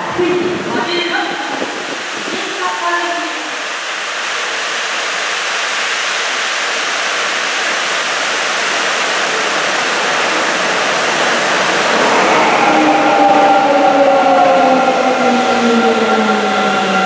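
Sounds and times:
subway train rushing past: 0.0 - 17.0
steady tones: 11.1 - 17.0.

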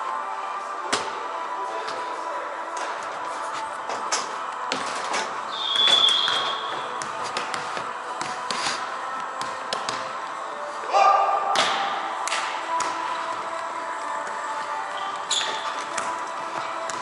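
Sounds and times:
high squeak: 5.5 - 6.8, 15.3 - 15.8.

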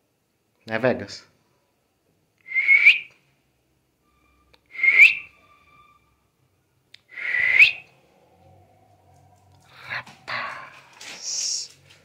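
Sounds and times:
person whistling: 2.5 - 3.1, 4.6 - 6.0, 7.1 - 7.9.

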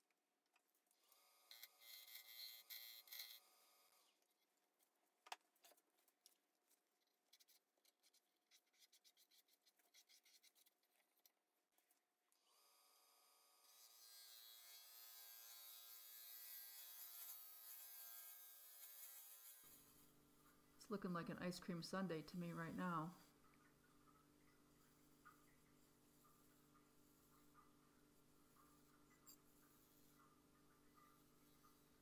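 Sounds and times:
wood lathe turning: 1.5 - 3.6.

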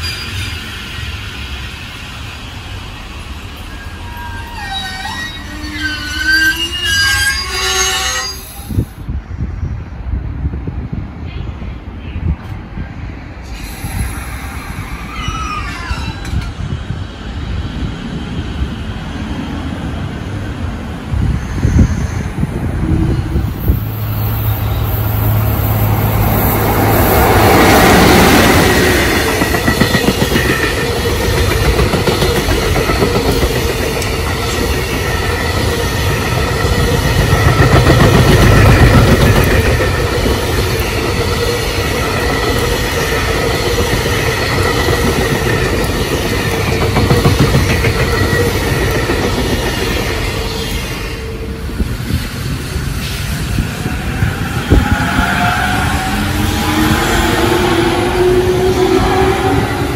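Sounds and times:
electric train passing: 0.0 - 59.9
freight train wheels clattering: 23.6 - 59.9.

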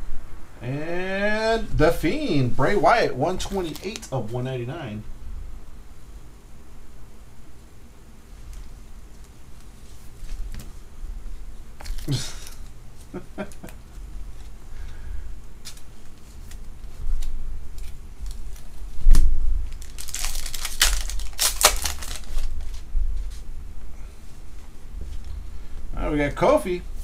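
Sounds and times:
foil wrappers crinkling and tearing: 3.4 - 4.1, 11.8 - 12.7, 15.6 - 23.4.

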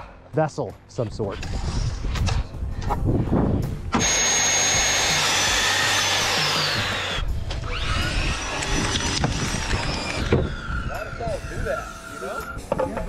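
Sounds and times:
power tool whining: 3.9 - 12.8.

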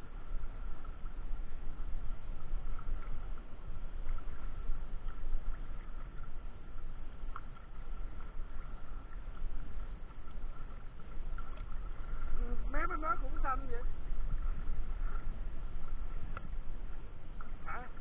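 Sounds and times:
water sloshing and lapping: 0.0 - 18.0
small splashes: 2.6 - 18.0.

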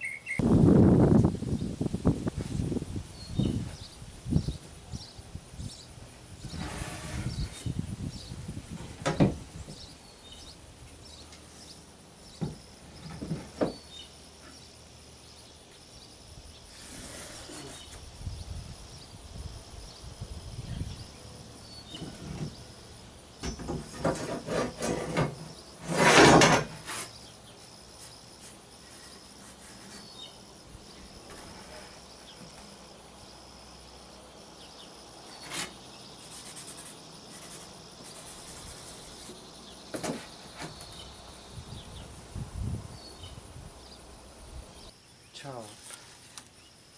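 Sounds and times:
cardboard scraping rasp: 6.5 - 7.7, 16.7 - 17.9, 23.8 - 27.2, 35.3 - 41.0
cardboard knocks and rubs: 39.2 - 40.9.

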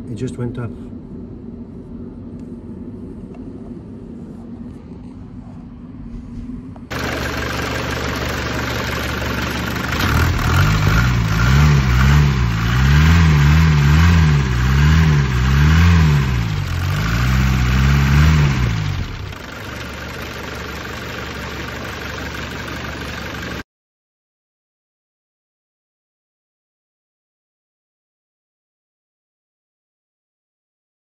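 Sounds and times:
diesel engine idling and revving: 6.9 - 23.6.

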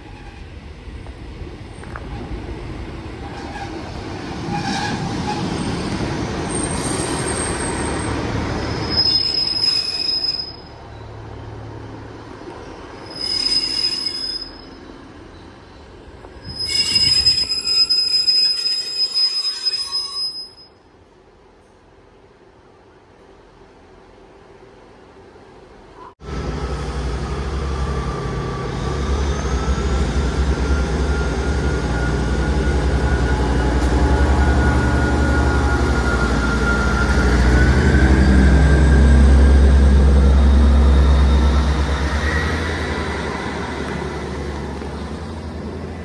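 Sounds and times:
train engine rumble: 0.0 - 19.6, 20.8 - 46.0
brake and wheel squeal: 4.5 - 11.1, 13.0 - 15.8, 16.4 - 20.8, 28.0 - 43.5.

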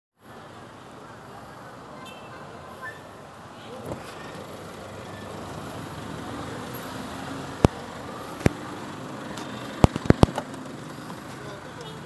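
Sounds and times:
street traffic noise: 0.2 - 12.0
vehicle engine running: 3.9 - 12.0.

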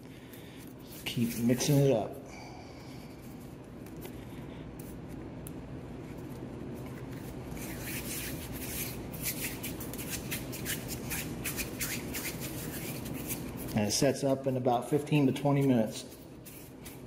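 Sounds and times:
low steady hum: 0.0 - 17.0
hands rubbing putty: 7.0 - 13.8.

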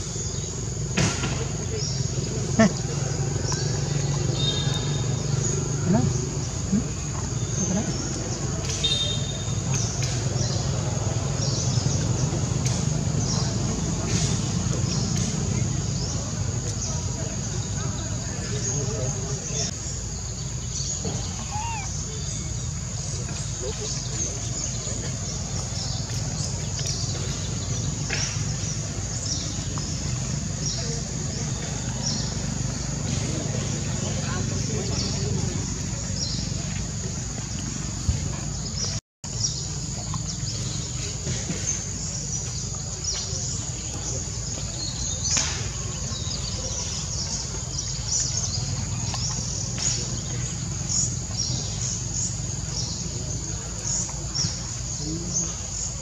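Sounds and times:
animal chirps: 21.0 - 22.5.

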